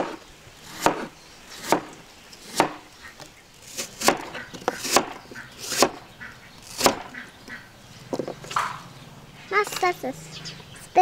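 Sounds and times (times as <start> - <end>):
knife chopping on cutting board: 0.8 - 1.9, 3.8 - 6.0.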